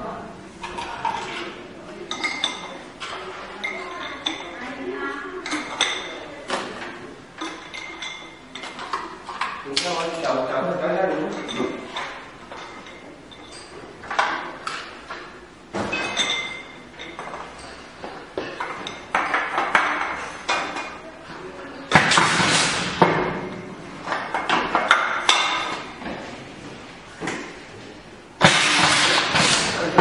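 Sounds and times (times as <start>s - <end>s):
machine air rush: 28.4s - 29.9s.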